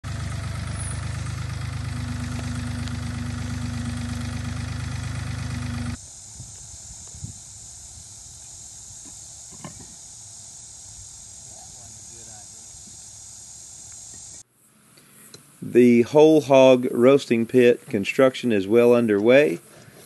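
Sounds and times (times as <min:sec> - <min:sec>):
tractor engine running: 0:00.0 - 0:06.0
steady whine: 0:00.0 - 0:14.4
insect buzz: 0:00.1 - 0:15.6.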